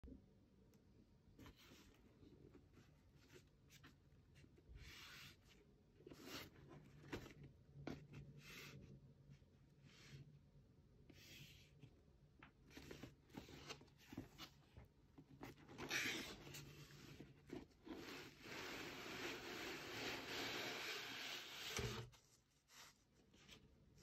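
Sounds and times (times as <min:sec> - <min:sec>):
hands rubbing cardboard box: 0:16.0 - 0:23.1.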